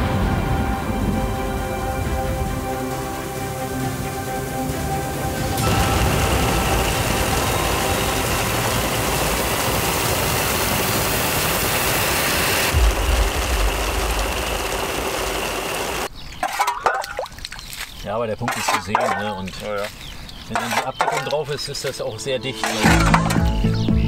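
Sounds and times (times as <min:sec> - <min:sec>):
low rumble: 0:00.0 - 0:12.0, 0:12.7 - 0:16.1
heavy rain hissing: 0:00.0 - 0:16.1.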